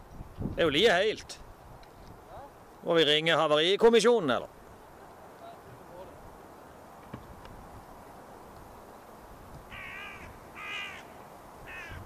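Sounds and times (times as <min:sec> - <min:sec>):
faint background noise: 0:00.0 - 0:12.0
crow cawing: 0:09.7 - 0:12.0.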